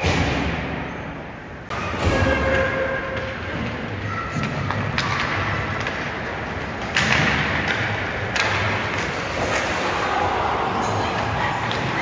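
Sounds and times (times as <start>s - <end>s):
arena noise: 0.0s - 12.0s
ice hockey knocks echoing: 3.6s - 9.8s.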